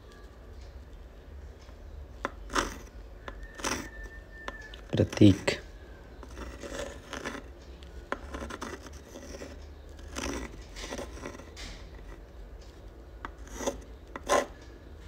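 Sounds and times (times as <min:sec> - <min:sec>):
pen scratching on paper: 0:02.5 - 0:02.9, 0:03.5 - 0:03.9, 0:06.2 - 0:07.5, 0:08.2 - 0:12.2, 0:13.3 - 0:14.6.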